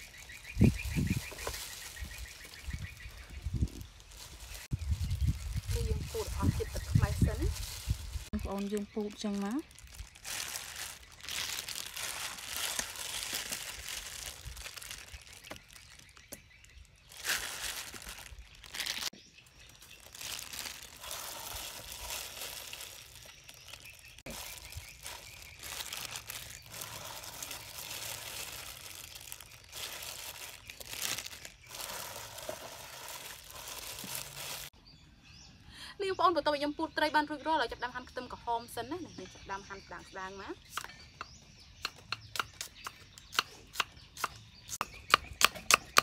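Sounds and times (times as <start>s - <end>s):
plastic glove crinkling: 0.0s - 34.8s.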